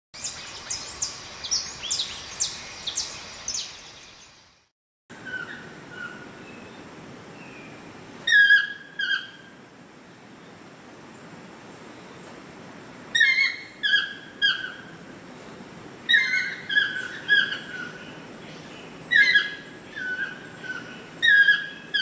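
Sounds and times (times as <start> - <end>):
toucan yelping calls: 8.2 - 9.5, 13.1 - 15.0, 16.1 - 18.1, 19.1 - 22.0.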